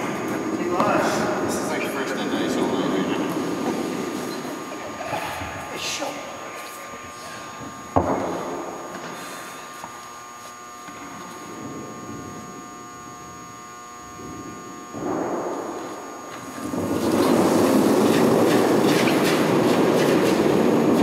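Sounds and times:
steady hum: 0.0 - 21.0
curling stone rumbling on ice: 16.5 - 21.0.

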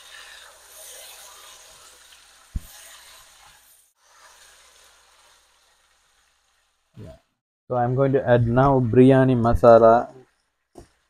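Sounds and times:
meat sizzling in hot oil: 0.0 - 6.9.

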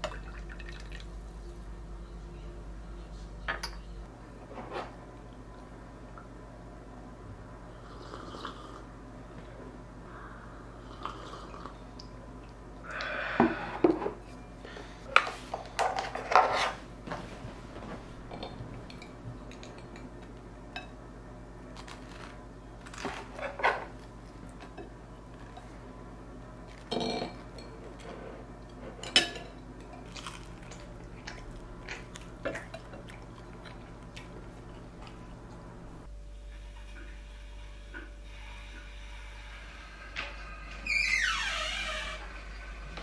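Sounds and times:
dishes and cutlery clinking: 3.5 - 3.9, 28.7 - 30.2.

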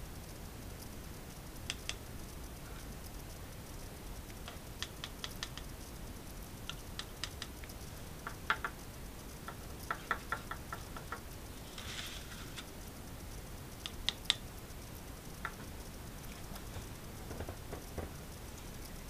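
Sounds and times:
scraping rustle: 11.5 - 12.8.

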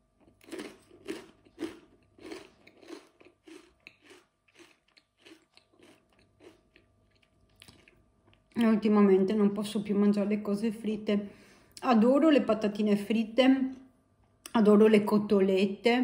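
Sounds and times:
crunchy chewing of snack sticks: 0.0 - 8.6.

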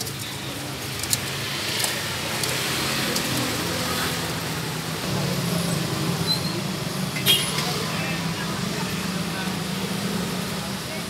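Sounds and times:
street traffic rumble: 0.0 - 11.0.

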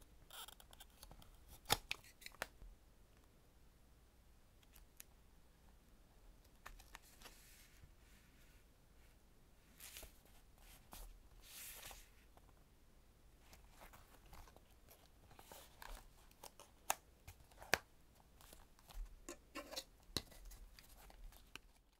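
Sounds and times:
paper pages rustling: 9.8 - 12.2.

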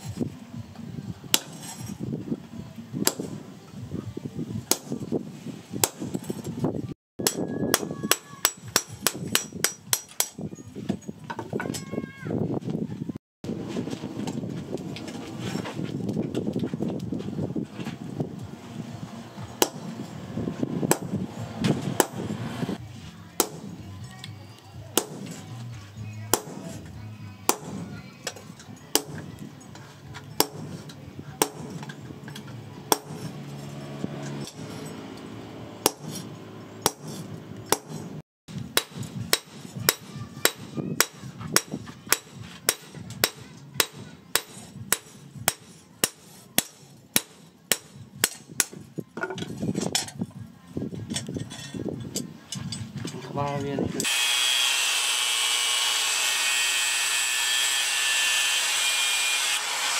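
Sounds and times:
hammer striking steel punch: 3.0 - 3.4, 4.7 - 5.0, 5.8 - 6.2, 7.2 - 10.4, 19.6 - 20.0, 20.9 - 21.2, 23.4 - 23.8, 25.0 - 25.4, 26.3 - 26.8, 27.5 - 29.3, 30.4 - 32.0, 32.9 - 33.3, 35.8 - 48.8.

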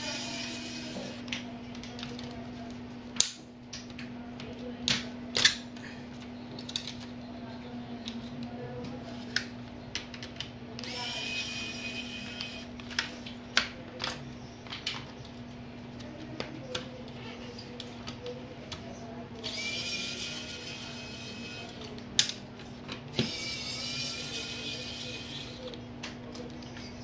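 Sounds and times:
electric screwdriver whirring: 10.8 - 12.7, 19.4 - 21.8, 23.2 - 25.7.

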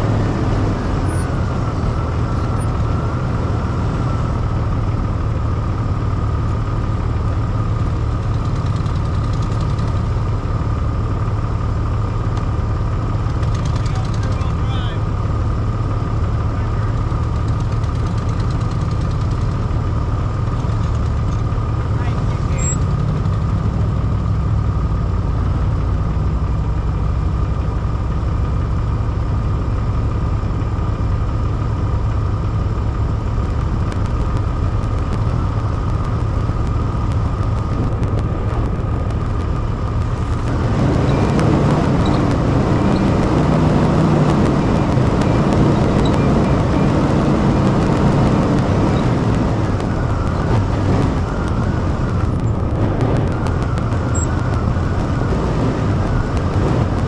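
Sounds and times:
vehicle driving through snow: 0.0 - 57.0
vehicle engine running: 0.0 - 57.0.

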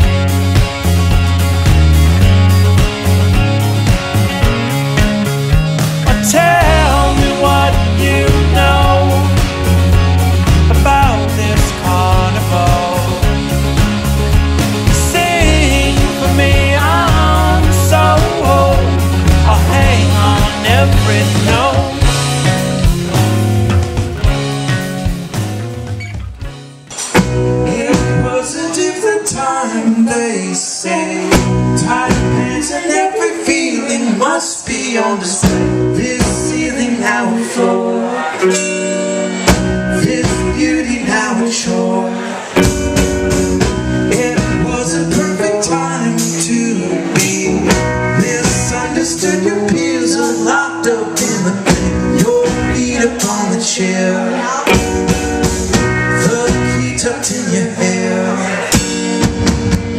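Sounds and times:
drums: 0.0 - 29.4, 31.1 - 33.0, 34.6 - 37.6, 38.5 - 59.9
electric guitars: 0.0 - 59.9
keyboard: 0.0 - 59.9.

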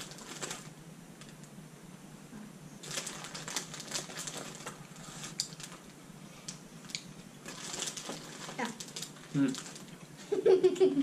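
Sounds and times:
plastic candy bag crinkling: 0.0 - 1.4, 2.8 - 10.0.

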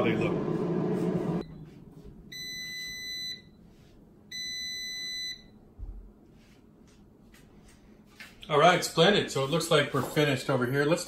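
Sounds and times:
air fryer beeping: 2.3 - 3.6, 4.3 - 5.6.

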